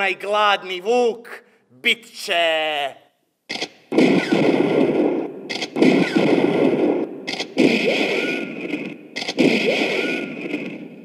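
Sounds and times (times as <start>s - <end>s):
rifle shots: 3.5s - 11.0s.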